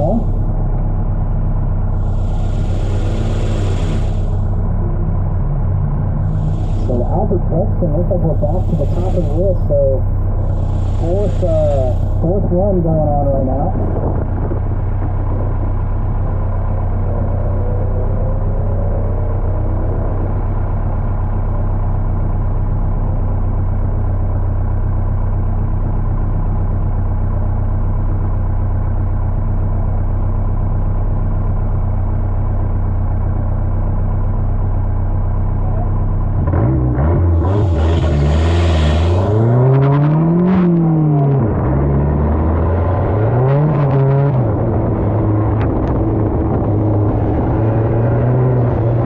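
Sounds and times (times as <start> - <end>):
pickup engine idling: 0.0 - 36.4
engine revving: 1.9 - 15.6, 35.6 - 49.0.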